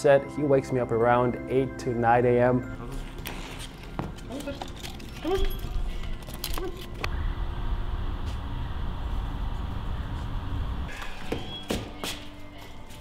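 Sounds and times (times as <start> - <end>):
low outdoor rumble: 6.9 - 11.0.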